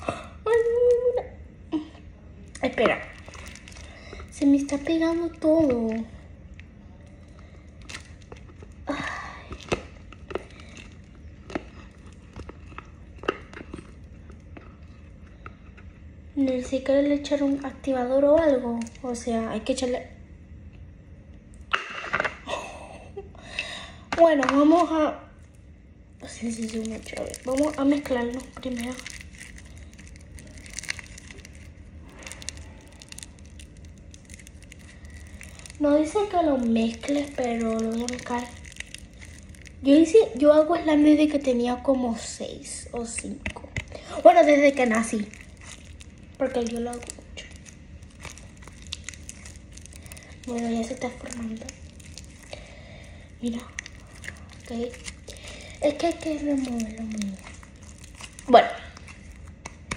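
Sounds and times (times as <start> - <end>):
slime squishing and crackling: 2.4 - 15.6, 16.4 - 19.9, 26.2 - 59.9.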